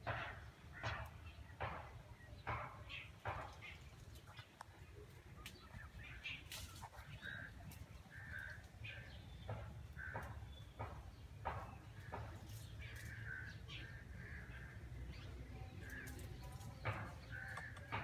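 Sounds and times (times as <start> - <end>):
crow cawing: 8.1 - 8.7, 9.9 - 10.5.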